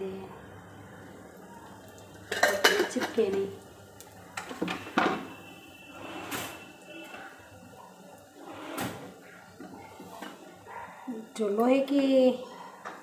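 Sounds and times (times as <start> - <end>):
kitchen knocks and clatters: 2.3 - 3.5, 4.4 - 5.4.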